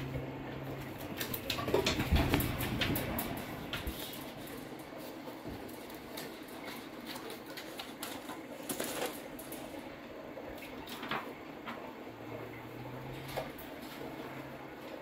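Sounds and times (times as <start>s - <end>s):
light clicks and crackles: 0.6s - 11.9s
magazine paper rustling and crinkling: 2.2s - 10.0s, 10.6s - 12.0s.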